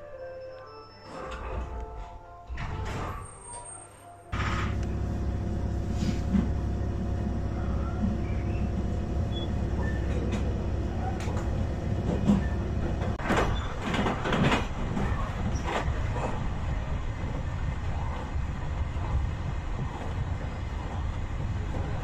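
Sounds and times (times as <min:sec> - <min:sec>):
train wheels rumbling on rails: 0:04.4 - 0:22.0
wheels clacking over track joints: 0:06.3 - 0:22.0.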